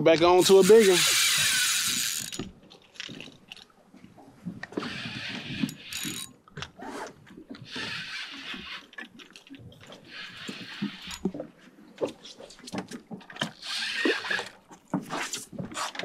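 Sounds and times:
fishing reel whirring and clicking: 0.3 - 2.5, 4.8 - 6.3, 7.6 - 11.3, 13.4 - 14.6.

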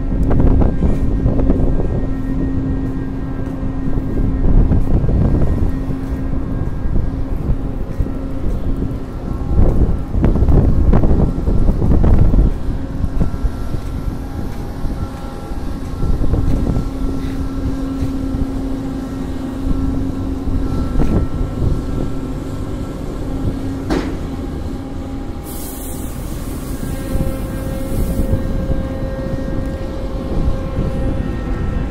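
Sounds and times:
crane rumbling and humming: 0.0 - 31.9
bulk cargo pouring with hiss: 25.4 - 26.8.

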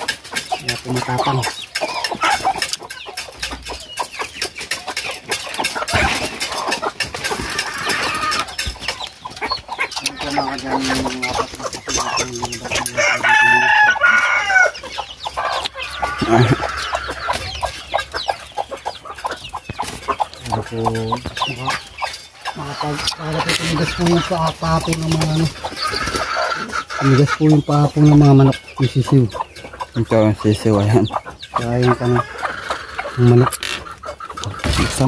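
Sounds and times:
chickens clucking: 0.0 - 35.0
rooster crowing: 7.4 - 8.5, 12.8 - 14.8, 32.0 - 33.3.

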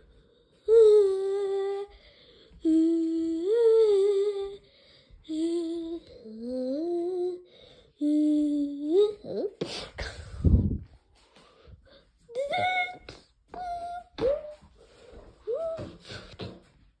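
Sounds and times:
person humming: 0.7 - 1.9, 2.6 - 4.6, 5.2 - 9.6.

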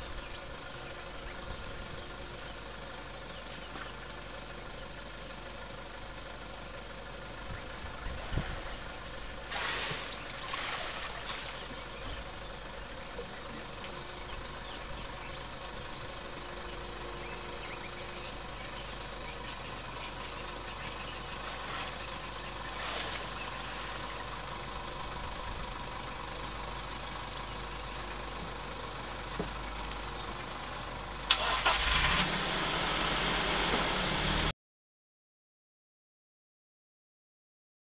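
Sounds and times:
vehicle engine idling: 0.0 - 34.5
short hissing bursts: 9.4 - 10.3.

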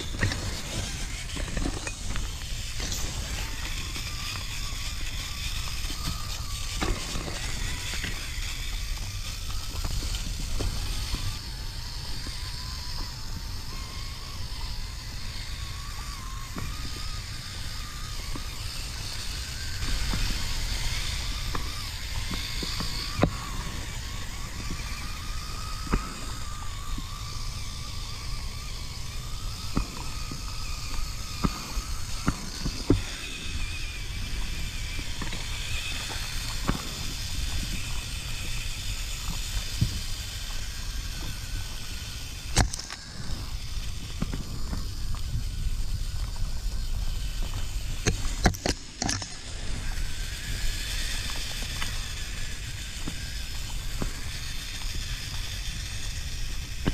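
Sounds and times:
electric motor whining: 0.0 - 56.9
sharp clicks and knocks: 48.0 - 49.4.

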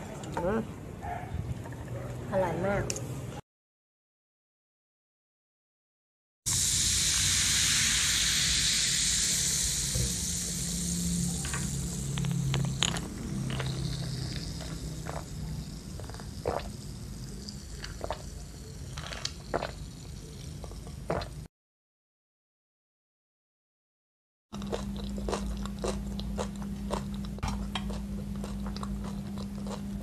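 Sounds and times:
soda fizzing: 6.5 - 21.5.

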